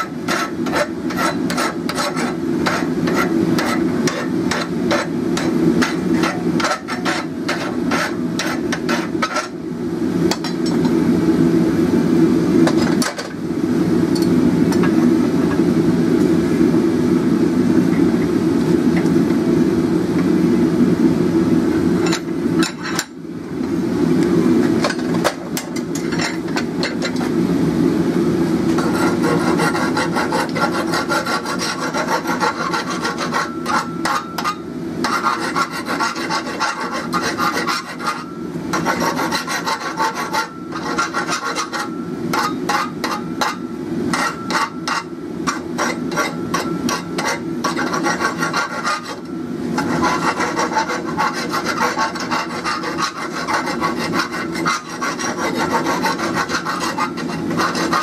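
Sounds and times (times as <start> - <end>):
hand file rasping on steel: 0.2 - 5.1, 5.8 - 9.5, 28.8 - 58.0.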